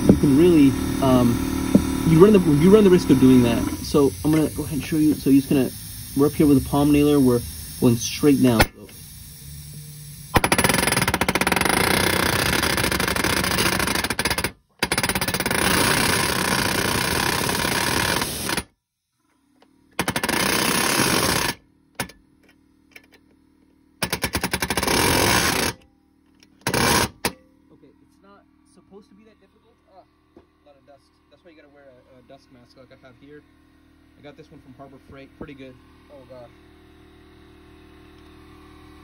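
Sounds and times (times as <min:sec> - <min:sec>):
pneumatic nailer hammering nail: 0:00.0 - 0:09.1, 0:10.2 - 0:18.7, 0:19.9 - 0:22.2, 0:24.0 - 0:27.4.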